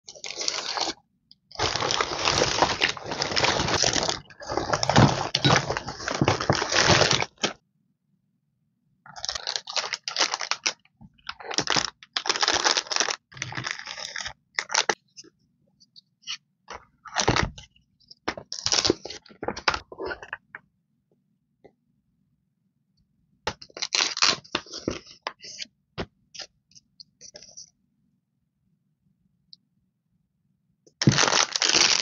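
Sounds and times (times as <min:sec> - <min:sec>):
cellophane packs crinkling: 0:00.1 - 0:07.6, 0:09.1 - 0:15.0, 0:18.5 - 0:19.2, 0:23.7 - 0:25.0, 0:31.0 - 0:32.0
plastic bag rustling: 0:01.5 - 0:07.5, 0:31.0 - 0:32.0.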